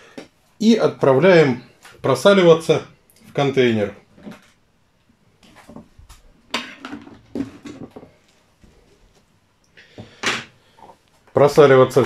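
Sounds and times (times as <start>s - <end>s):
plastic container knocking and scraping: 5.4s - 8.2s.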